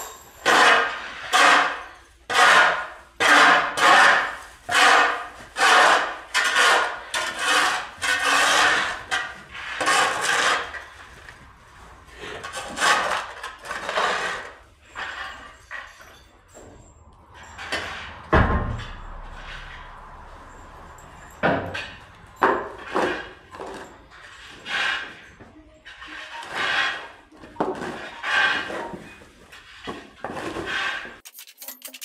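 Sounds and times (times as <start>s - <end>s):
shovel scraping hard manure: 0.4s - 11.1s, 12.3s - 15.6s.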